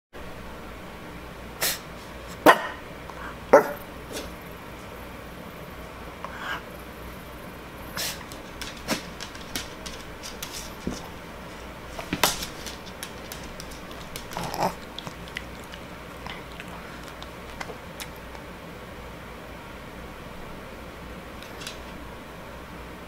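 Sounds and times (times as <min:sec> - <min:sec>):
dog claws clicking on hardwood floor: 0:08.2 - 0:11.2, 0:11.9 - 0:18.4, 0:21.4 - 0:22.0.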